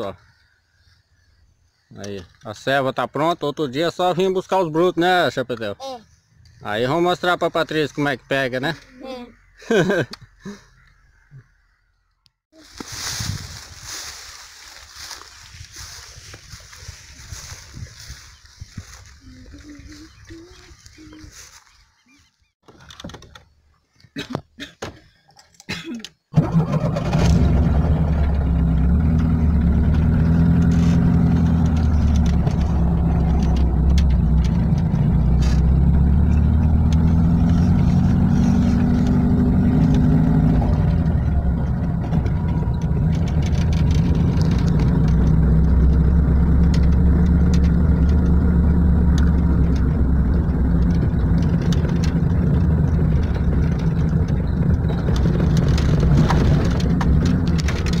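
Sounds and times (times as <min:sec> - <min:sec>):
car starter cranking: 0:26.4 - 0:37.4
car engine running: 0:27.0 - 0:58.0.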